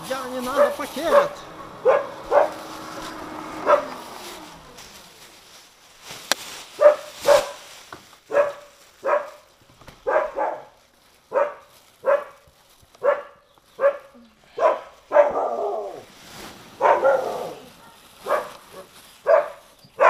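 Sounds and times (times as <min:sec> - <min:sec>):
dog barking: 0:00.5 - 0:02.8, 0:03.6 - 0:04.0, 0:06.8 - 0:07.6, 0:08.3 - 0:12.4, 0:13.0 - 0:16.0, 0:16.8 - 0:20.0.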